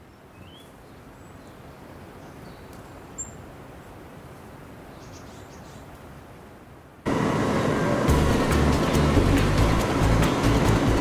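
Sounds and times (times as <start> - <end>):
bird chirps: 0.1 - 1.6, 2.2 - 3.4
low background rush: 6.6 - 11.0.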